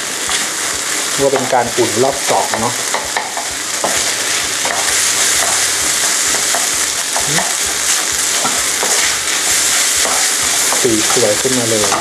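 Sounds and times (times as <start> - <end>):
rice sizzling in frying pan: 0.0 - 12.0
wooden spatula scraping pan: 8.4 - 11.2.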